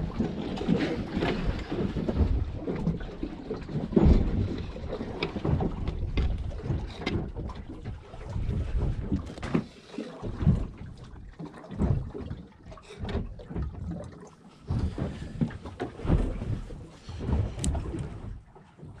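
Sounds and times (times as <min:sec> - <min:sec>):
wind buffeting microphone: 0:00.0 - 0:09.5, 0:14.7 - 0:19.0
water lapping against hull: 0:00.0 - 0:19.0.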